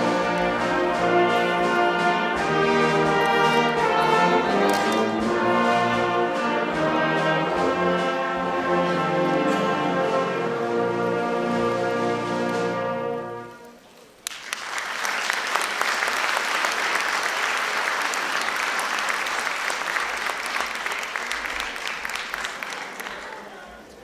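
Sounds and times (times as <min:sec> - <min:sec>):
wind band holding chord: 0:00.0 - 0:13.7
audience applause: 0:14.2 - 0:24.0.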